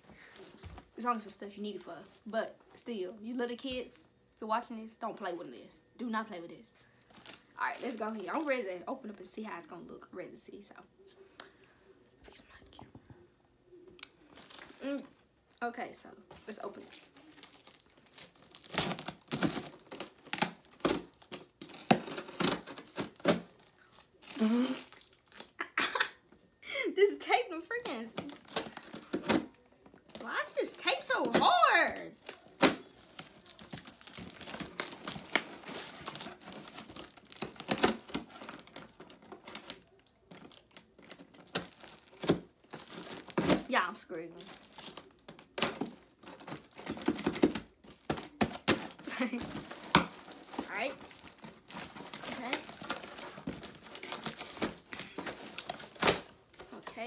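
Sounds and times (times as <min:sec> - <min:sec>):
packing tape ripping: 0:17.2 - 0:25.6, 0:27.8 - 0:43.7, 0:44.4 - 0:56.9.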